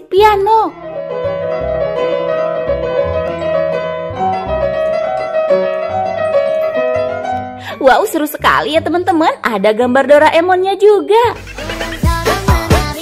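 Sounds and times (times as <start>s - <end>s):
toy electronic piano tune: 0.2s - 8.9s.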